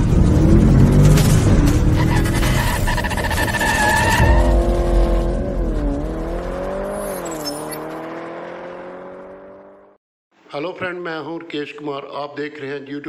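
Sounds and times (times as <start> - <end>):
car engine sound effect: 0.0 - 10.0.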